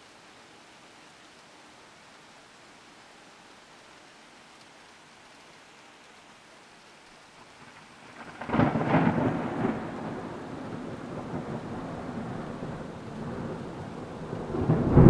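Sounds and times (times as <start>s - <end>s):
heavy rain hissing: 0.0s - 15.0s
thunderclap rumbling: 8.2s - 15.0s.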